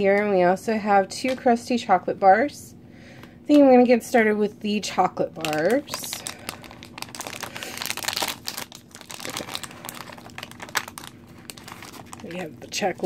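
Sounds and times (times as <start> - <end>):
plastic wrapper crackling: 5.4 - 13.0.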